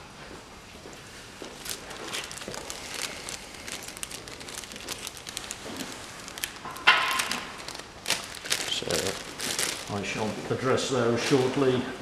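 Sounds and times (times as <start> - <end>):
plastic bag crinkling: 1.4 - 10.6.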